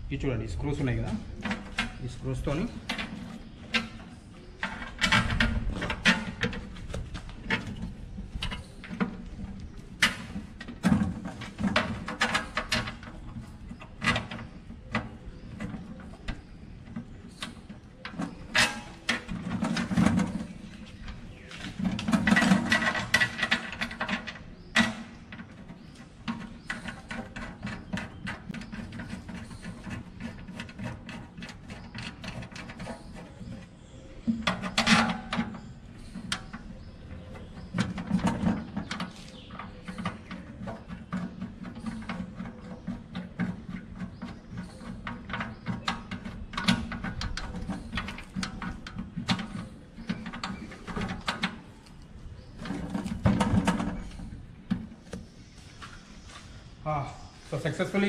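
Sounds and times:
scraping and rattling against metal: 0:00.5 - 0:56.4
clicks and knocks in metal box: 0:02.6 - 0:55.2.

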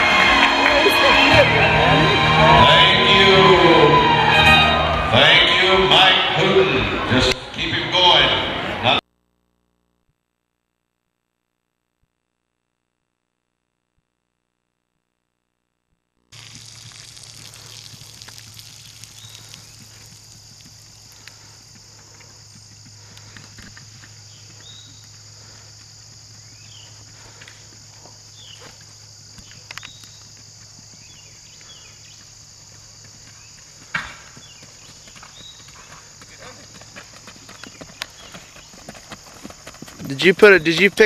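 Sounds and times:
low hum: 0:00.0 - 0:07.4
high insect drone: 0:16.4 - 0:41.0.

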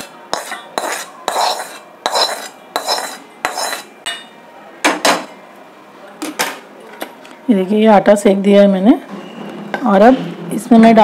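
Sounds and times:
metal spoon scraping a metal wok: 0:00.0 - 0:03.9.

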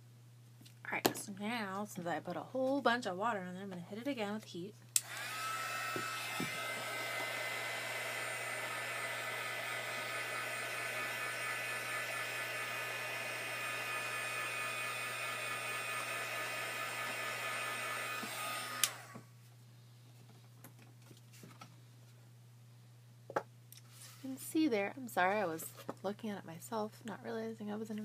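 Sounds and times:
heat gun switch click: 0:05.0 - 0:05.2, 0:18.7 - 0:19.0
heat gun blowing with fan whine: 0:05.0 - 0:19.3.

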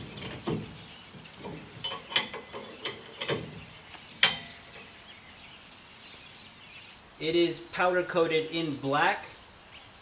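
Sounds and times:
sharp metal clank: 0:04.2 - 0:04.7.

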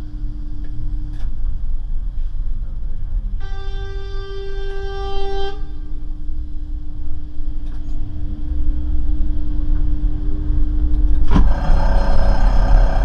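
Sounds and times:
tram rumbling on rails: 0:09.4 - 0:13.0.

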